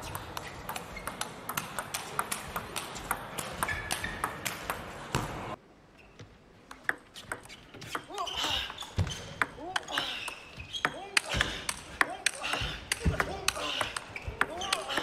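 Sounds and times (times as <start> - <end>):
table tennis ball clicking: 0.6 - 4.8.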